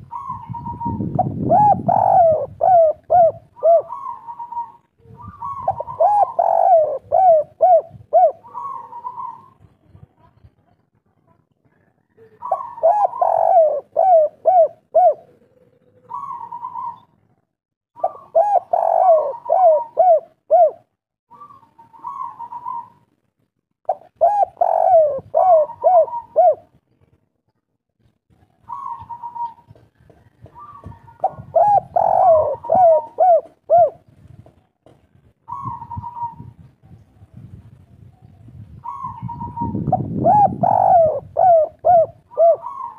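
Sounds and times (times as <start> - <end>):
dove cooing: 0.0 - 9.8, 12.1 - 17.4, 18.0 - 23.0, 23.9 - 26.8, 28.6 - 34.2, 35.4 - 36.7, 38.8 - 42.9.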